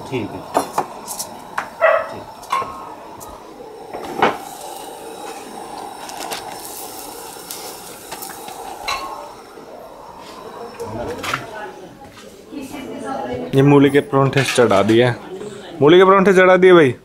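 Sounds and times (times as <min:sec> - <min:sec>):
steady background hiss: 0:00.0 - 0:17.0
cookware clattering: 0:14.0 - 0:15.1.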